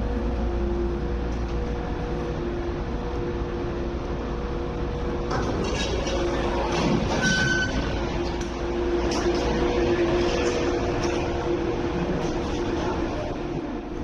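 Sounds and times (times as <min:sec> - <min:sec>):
train electrical hum: 0:00.0 - 0:14.0
doors sliding open: 0:05.2 - 0:13.6.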